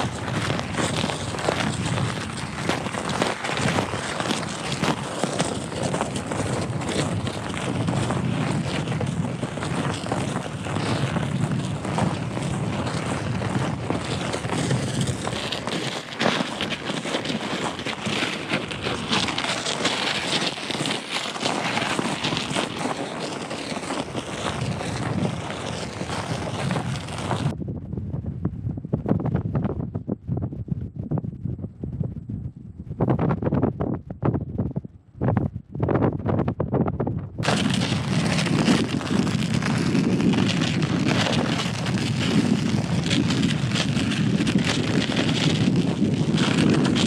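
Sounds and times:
wind buffeting microphone: 0.0s - 15.6s, 24.0s - 47.0s
footsteps on icy snow: 0.0s - 27.5s, 37.4s - 47.0s.

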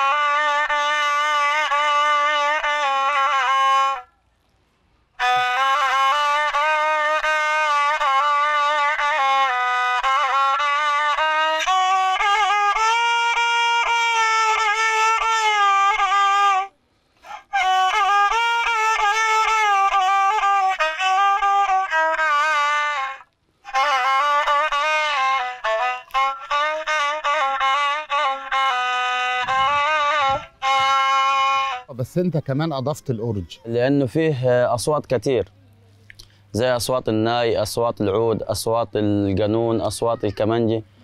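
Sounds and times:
bowed spike fiddle melody: 0.0s - 4.1s, 5.2s - 16.7s, 17.5s - 32.8s.

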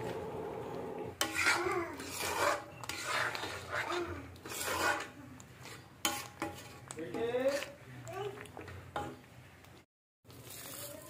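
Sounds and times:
spoon scraping metal pan: 1.2s - 7.8s.

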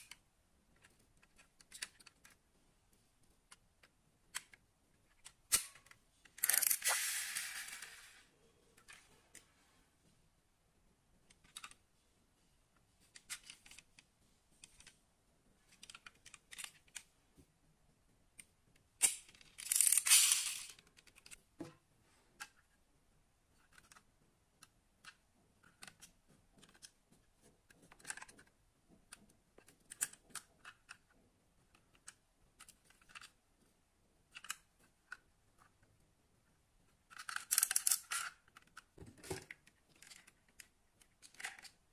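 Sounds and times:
small clicks of model cars handled: 0.0s - 2.4s, 3.2s - 8.2s, 8.8s - 9.5s, 11.3s - 11.8s, 13.0s - 15.0s, 15.6s - 17.1s, 18.3s - 21.4s, 22.4s - 22.8s, 23.6s - 33.4s, 34.3s - 35.9s, 36.9s - 41.9s.

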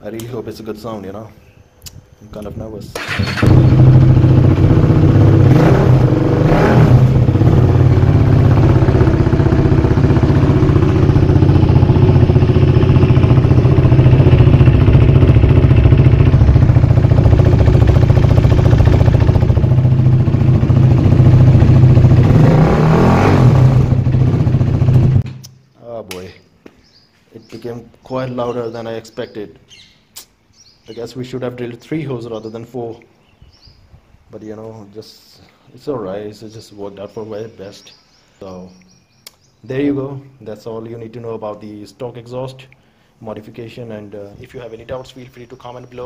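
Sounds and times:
motorcycle engine revving: 3.0s - 25.4s.

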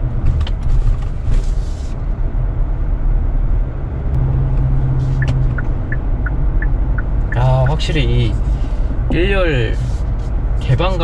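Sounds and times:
road and tyre rumble: 0.0s - 11.0s
low steady hum: 2.8s - 10.7s.

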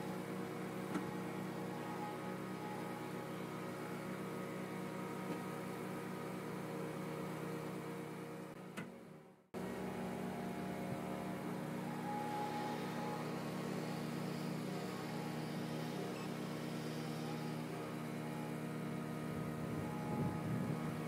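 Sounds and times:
diesel loader engine running: 0.0s - 21.0s
portable generator running: 9.6s - 21.0s.

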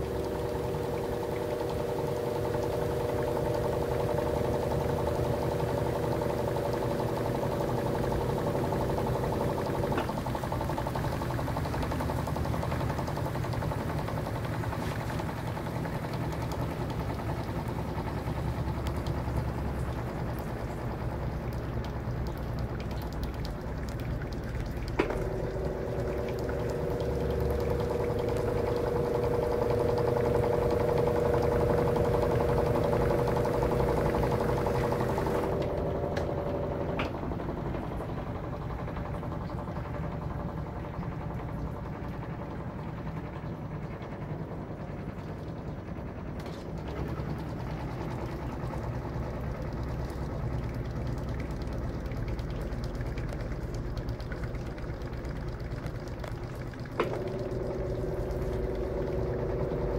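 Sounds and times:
washing machine spinning: 0.0s - 59.9s
steady whine: 25.0s - 50.7s, 57.0s - 59.9s.

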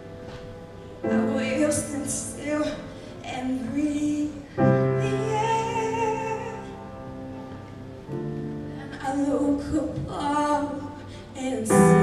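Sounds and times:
keyboard accompaniment: 0.0s - 12.0s
woman singing into microphone: 1.1s - 6.8s, 8.8s - 12.0s.

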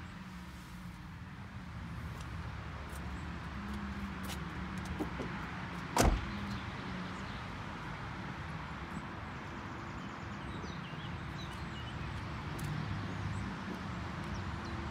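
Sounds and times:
sharp thump: 6.0s - 6.3s.

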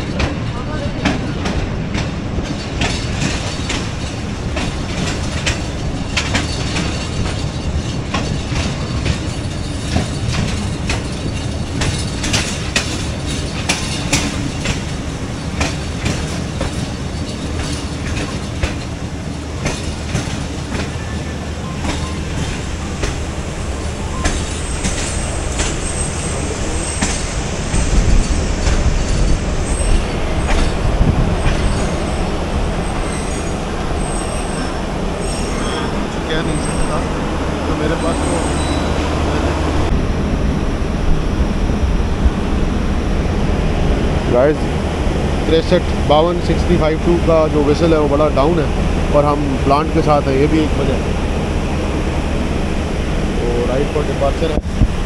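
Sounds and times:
train wheels clattering on rails: 0.0s - 40.1s
high wheel squeal: 23.8s - 30.8s, 31.4s - 39.9s.

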